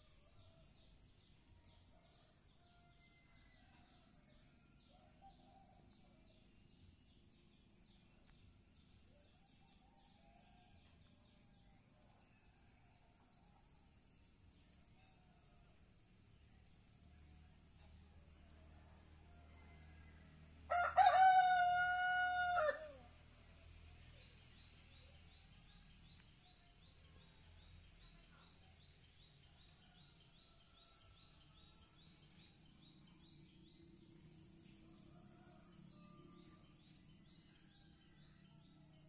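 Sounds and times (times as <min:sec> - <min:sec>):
faint outdoor background: 0:00.0 - 0:39.0
rooster crowing: 0:19.4 - 0:23.1.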